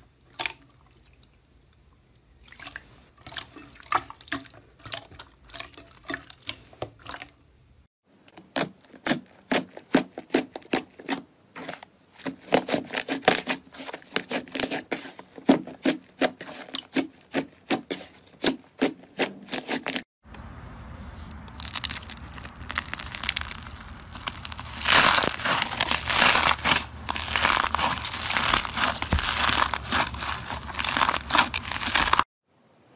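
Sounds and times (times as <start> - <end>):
low hum: 20.3 - 29.0
slime crackling in plastic bowl: 21.5 - 32.2
hands squishing sticky slime: 21.6 - 32.2.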